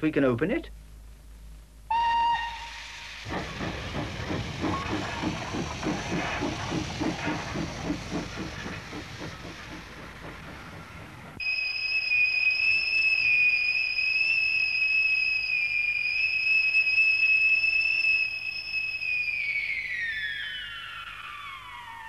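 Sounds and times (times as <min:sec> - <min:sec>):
factory whistle blowing: 0:01.9 - 0:03.8, 0:11.4 - 0:22.0.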